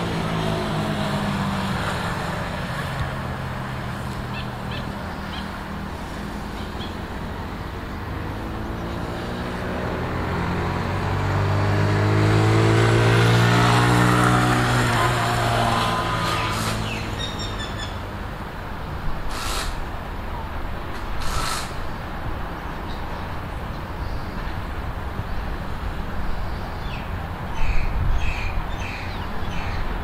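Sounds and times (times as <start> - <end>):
dirt bike engine revving: 8.1 - 17.5.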